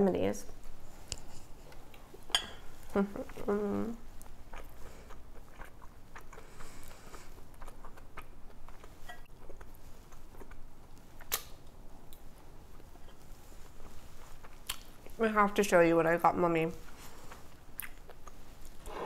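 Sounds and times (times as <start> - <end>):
person chewing salad: 0.6 - 15.2, 16.8 - 19.0
wet mouth clicks: 17.8 - 19.0.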